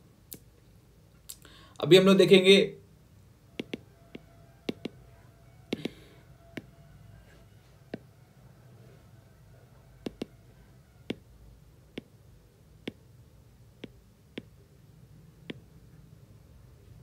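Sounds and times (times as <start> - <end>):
stylus tapping tablet glass: 3.6 - 5.0, 5.7 - 6.7, 10.0 - 10.4, 12.8 - 13.1, 13.8 - 14.6.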